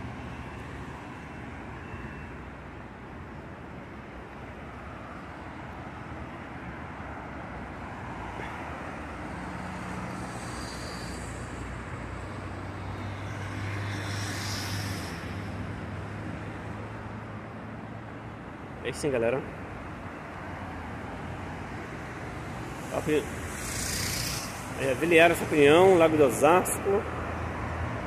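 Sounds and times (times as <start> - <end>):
traffic noise: 0.0 - 28.0
short air hiss: 13.5 - 15.6, 22.8 - 24.8.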